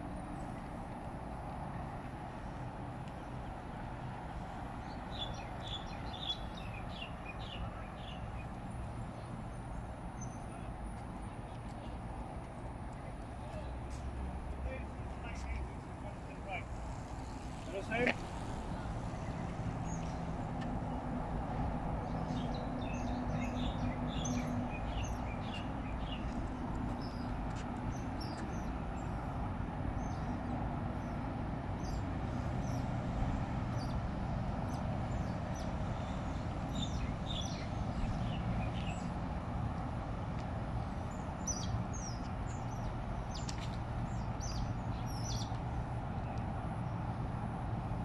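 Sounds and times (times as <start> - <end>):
distant traffic drone: 0.0 - 48.0.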